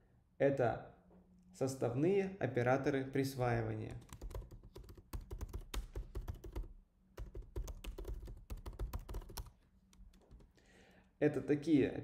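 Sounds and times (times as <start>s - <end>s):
computer keyboard typing: 3.9s - 10.6s.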